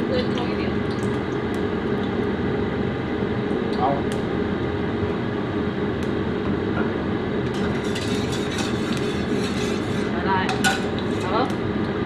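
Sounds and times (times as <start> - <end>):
low mechanical rumble: 0.0 - 12.0
metal spatula scraping wok: 7.5 - 11.5.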